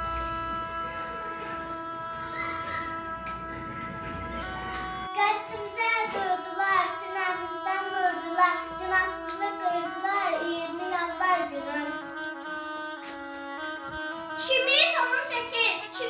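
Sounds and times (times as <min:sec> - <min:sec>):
music with long held notes: 0:00.0 - 0:16.0
child singing: 0:01.4 - 0:03.9, 0:05.1 - 0:12.6, 0:14.3 - 0:16.0.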